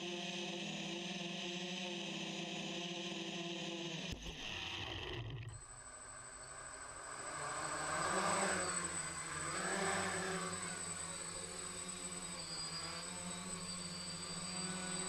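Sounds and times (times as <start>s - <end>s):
quadcopter buzzing hum: 7.2s - 15.0s.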